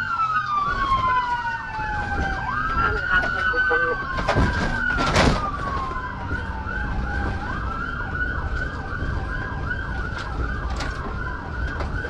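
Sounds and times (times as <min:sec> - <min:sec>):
siren fast yelp: 0:00.0 - 0:08.0
engine and road rumble: 0:00.0 - 0:12.0
siren falling wail: 0:00.0 - 0:12.0.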